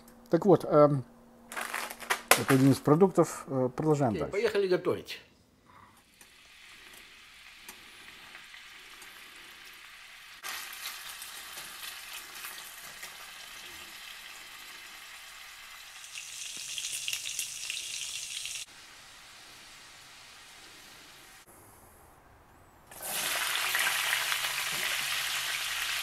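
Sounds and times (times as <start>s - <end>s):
sausage sizzling in oil: 6.1s - 21.5s, 22.9s - 26.0s.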